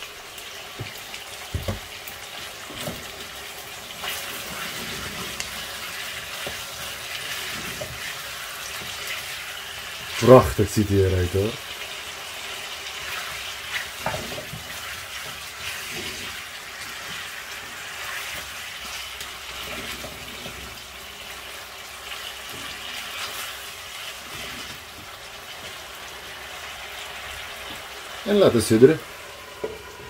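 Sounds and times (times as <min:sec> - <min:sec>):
chicken sizzling in frying pan: 0:00.0 - 0:30.0
spatula scraping and knocking: 0:04.0 - 0:09.2, 0:13.1 - 0:17.2.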